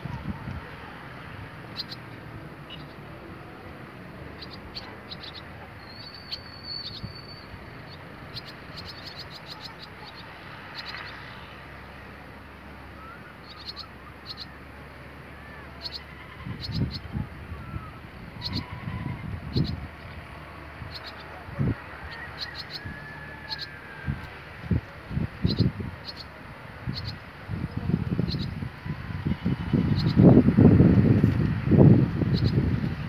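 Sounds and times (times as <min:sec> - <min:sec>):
swallows chirping: 0:01.7 - 0:03.0, 0:04.3 - 0:11.6, 0:13.0 - 0:14.6, 0:15.6 - 0:20.2, 0:20.8 - 0:21.4, 0:22.3 - 0:22.9, 0:25.4 - 0:28.6, 0:29.4 - 0:30.3, 0:32.3 - 0:32.7.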